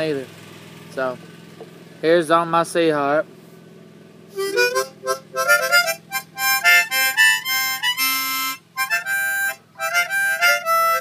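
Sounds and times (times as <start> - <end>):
harmonica playing a tune: 4.3 - 11.0.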